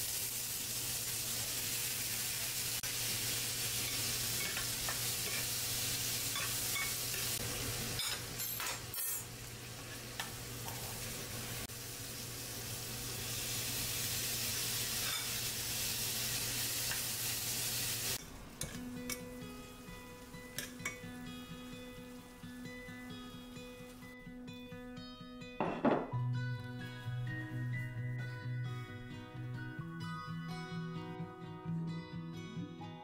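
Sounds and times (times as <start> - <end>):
meat sizzling in a frying pan: 0.0 - 8.4, 9.2 - 24.1
metal tongs scraping a pan: 3.8 - 5.5, 15.0 - 15.3.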